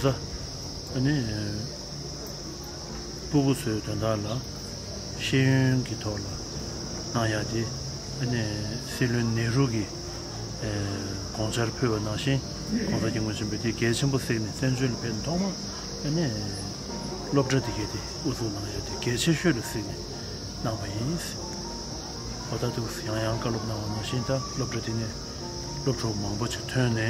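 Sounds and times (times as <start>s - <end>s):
high-pitched insect drone: 0.0s - 27.0s
man talking: 10.6s - 16.7s, 17.3s - 20.0s, 22.5s - 25.2s, 25.8s - 27.0s.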